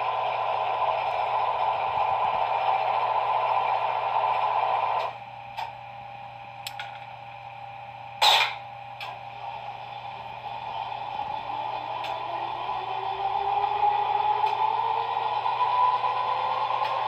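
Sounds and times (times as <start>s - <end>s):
model locomotive engine hum: 0.0s - 5.7s.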